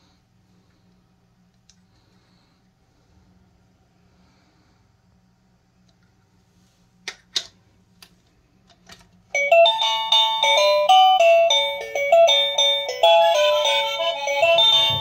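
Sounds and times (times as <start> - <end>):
electronic doorbell melody: 9.4 - 15.0.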